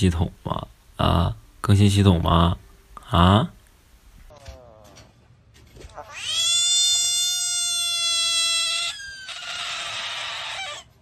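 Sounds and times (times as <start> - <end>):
frog screaming: 5.9 - 11.0.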